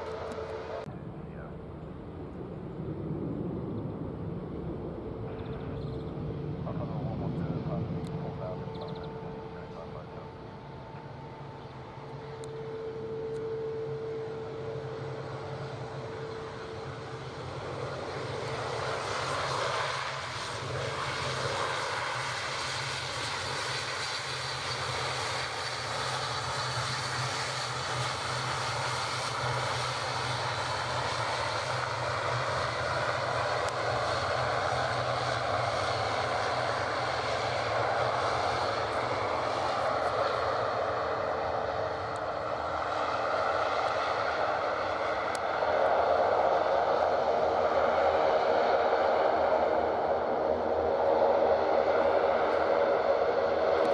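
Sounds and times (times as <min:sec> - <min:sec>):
constant low hum: 0:00.0 - 0:53.9
turboprop engines droning: 0:00.0 - 0:53.9.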